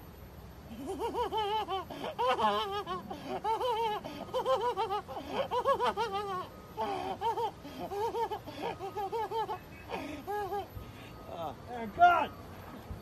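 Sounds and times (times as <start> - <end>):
boy laughing manically: 0.7 - 10.8.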